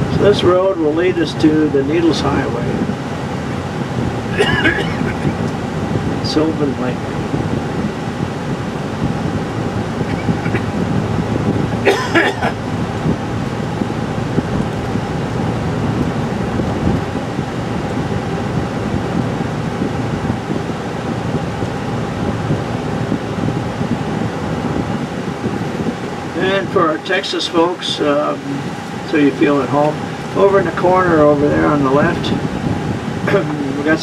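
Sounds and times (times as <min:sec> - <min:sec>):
car cabin road noise: 0:00.0 - 0:34.0.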